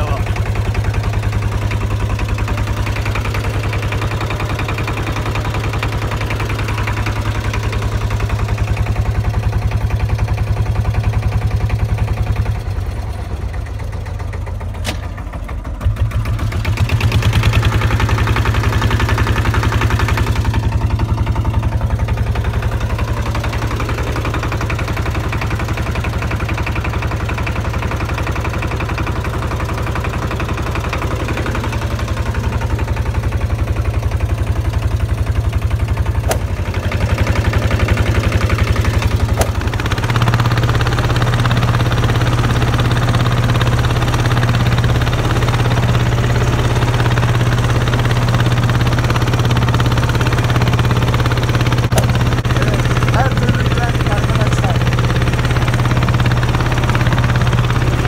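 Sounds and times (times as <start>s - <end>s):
boat engine chugging: 0.0s - 58.0s.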